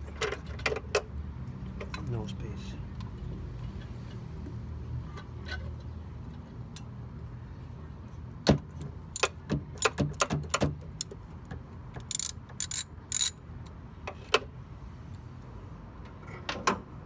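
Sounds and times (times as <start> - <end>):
screwdriver clicking on screws: 12.1 - 13.3.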